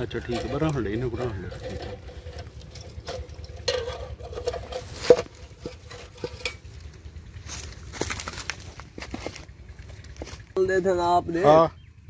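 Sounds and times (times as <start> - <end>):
dry twigs rustling and snapping: 0.0 - 10.6.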